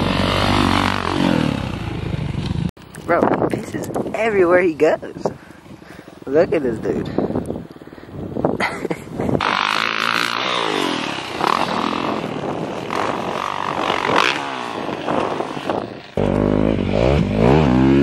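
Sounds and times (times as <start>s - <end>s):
dirt bike engine revving: 0.0s - 2.7s, 9.4s - 18.0s.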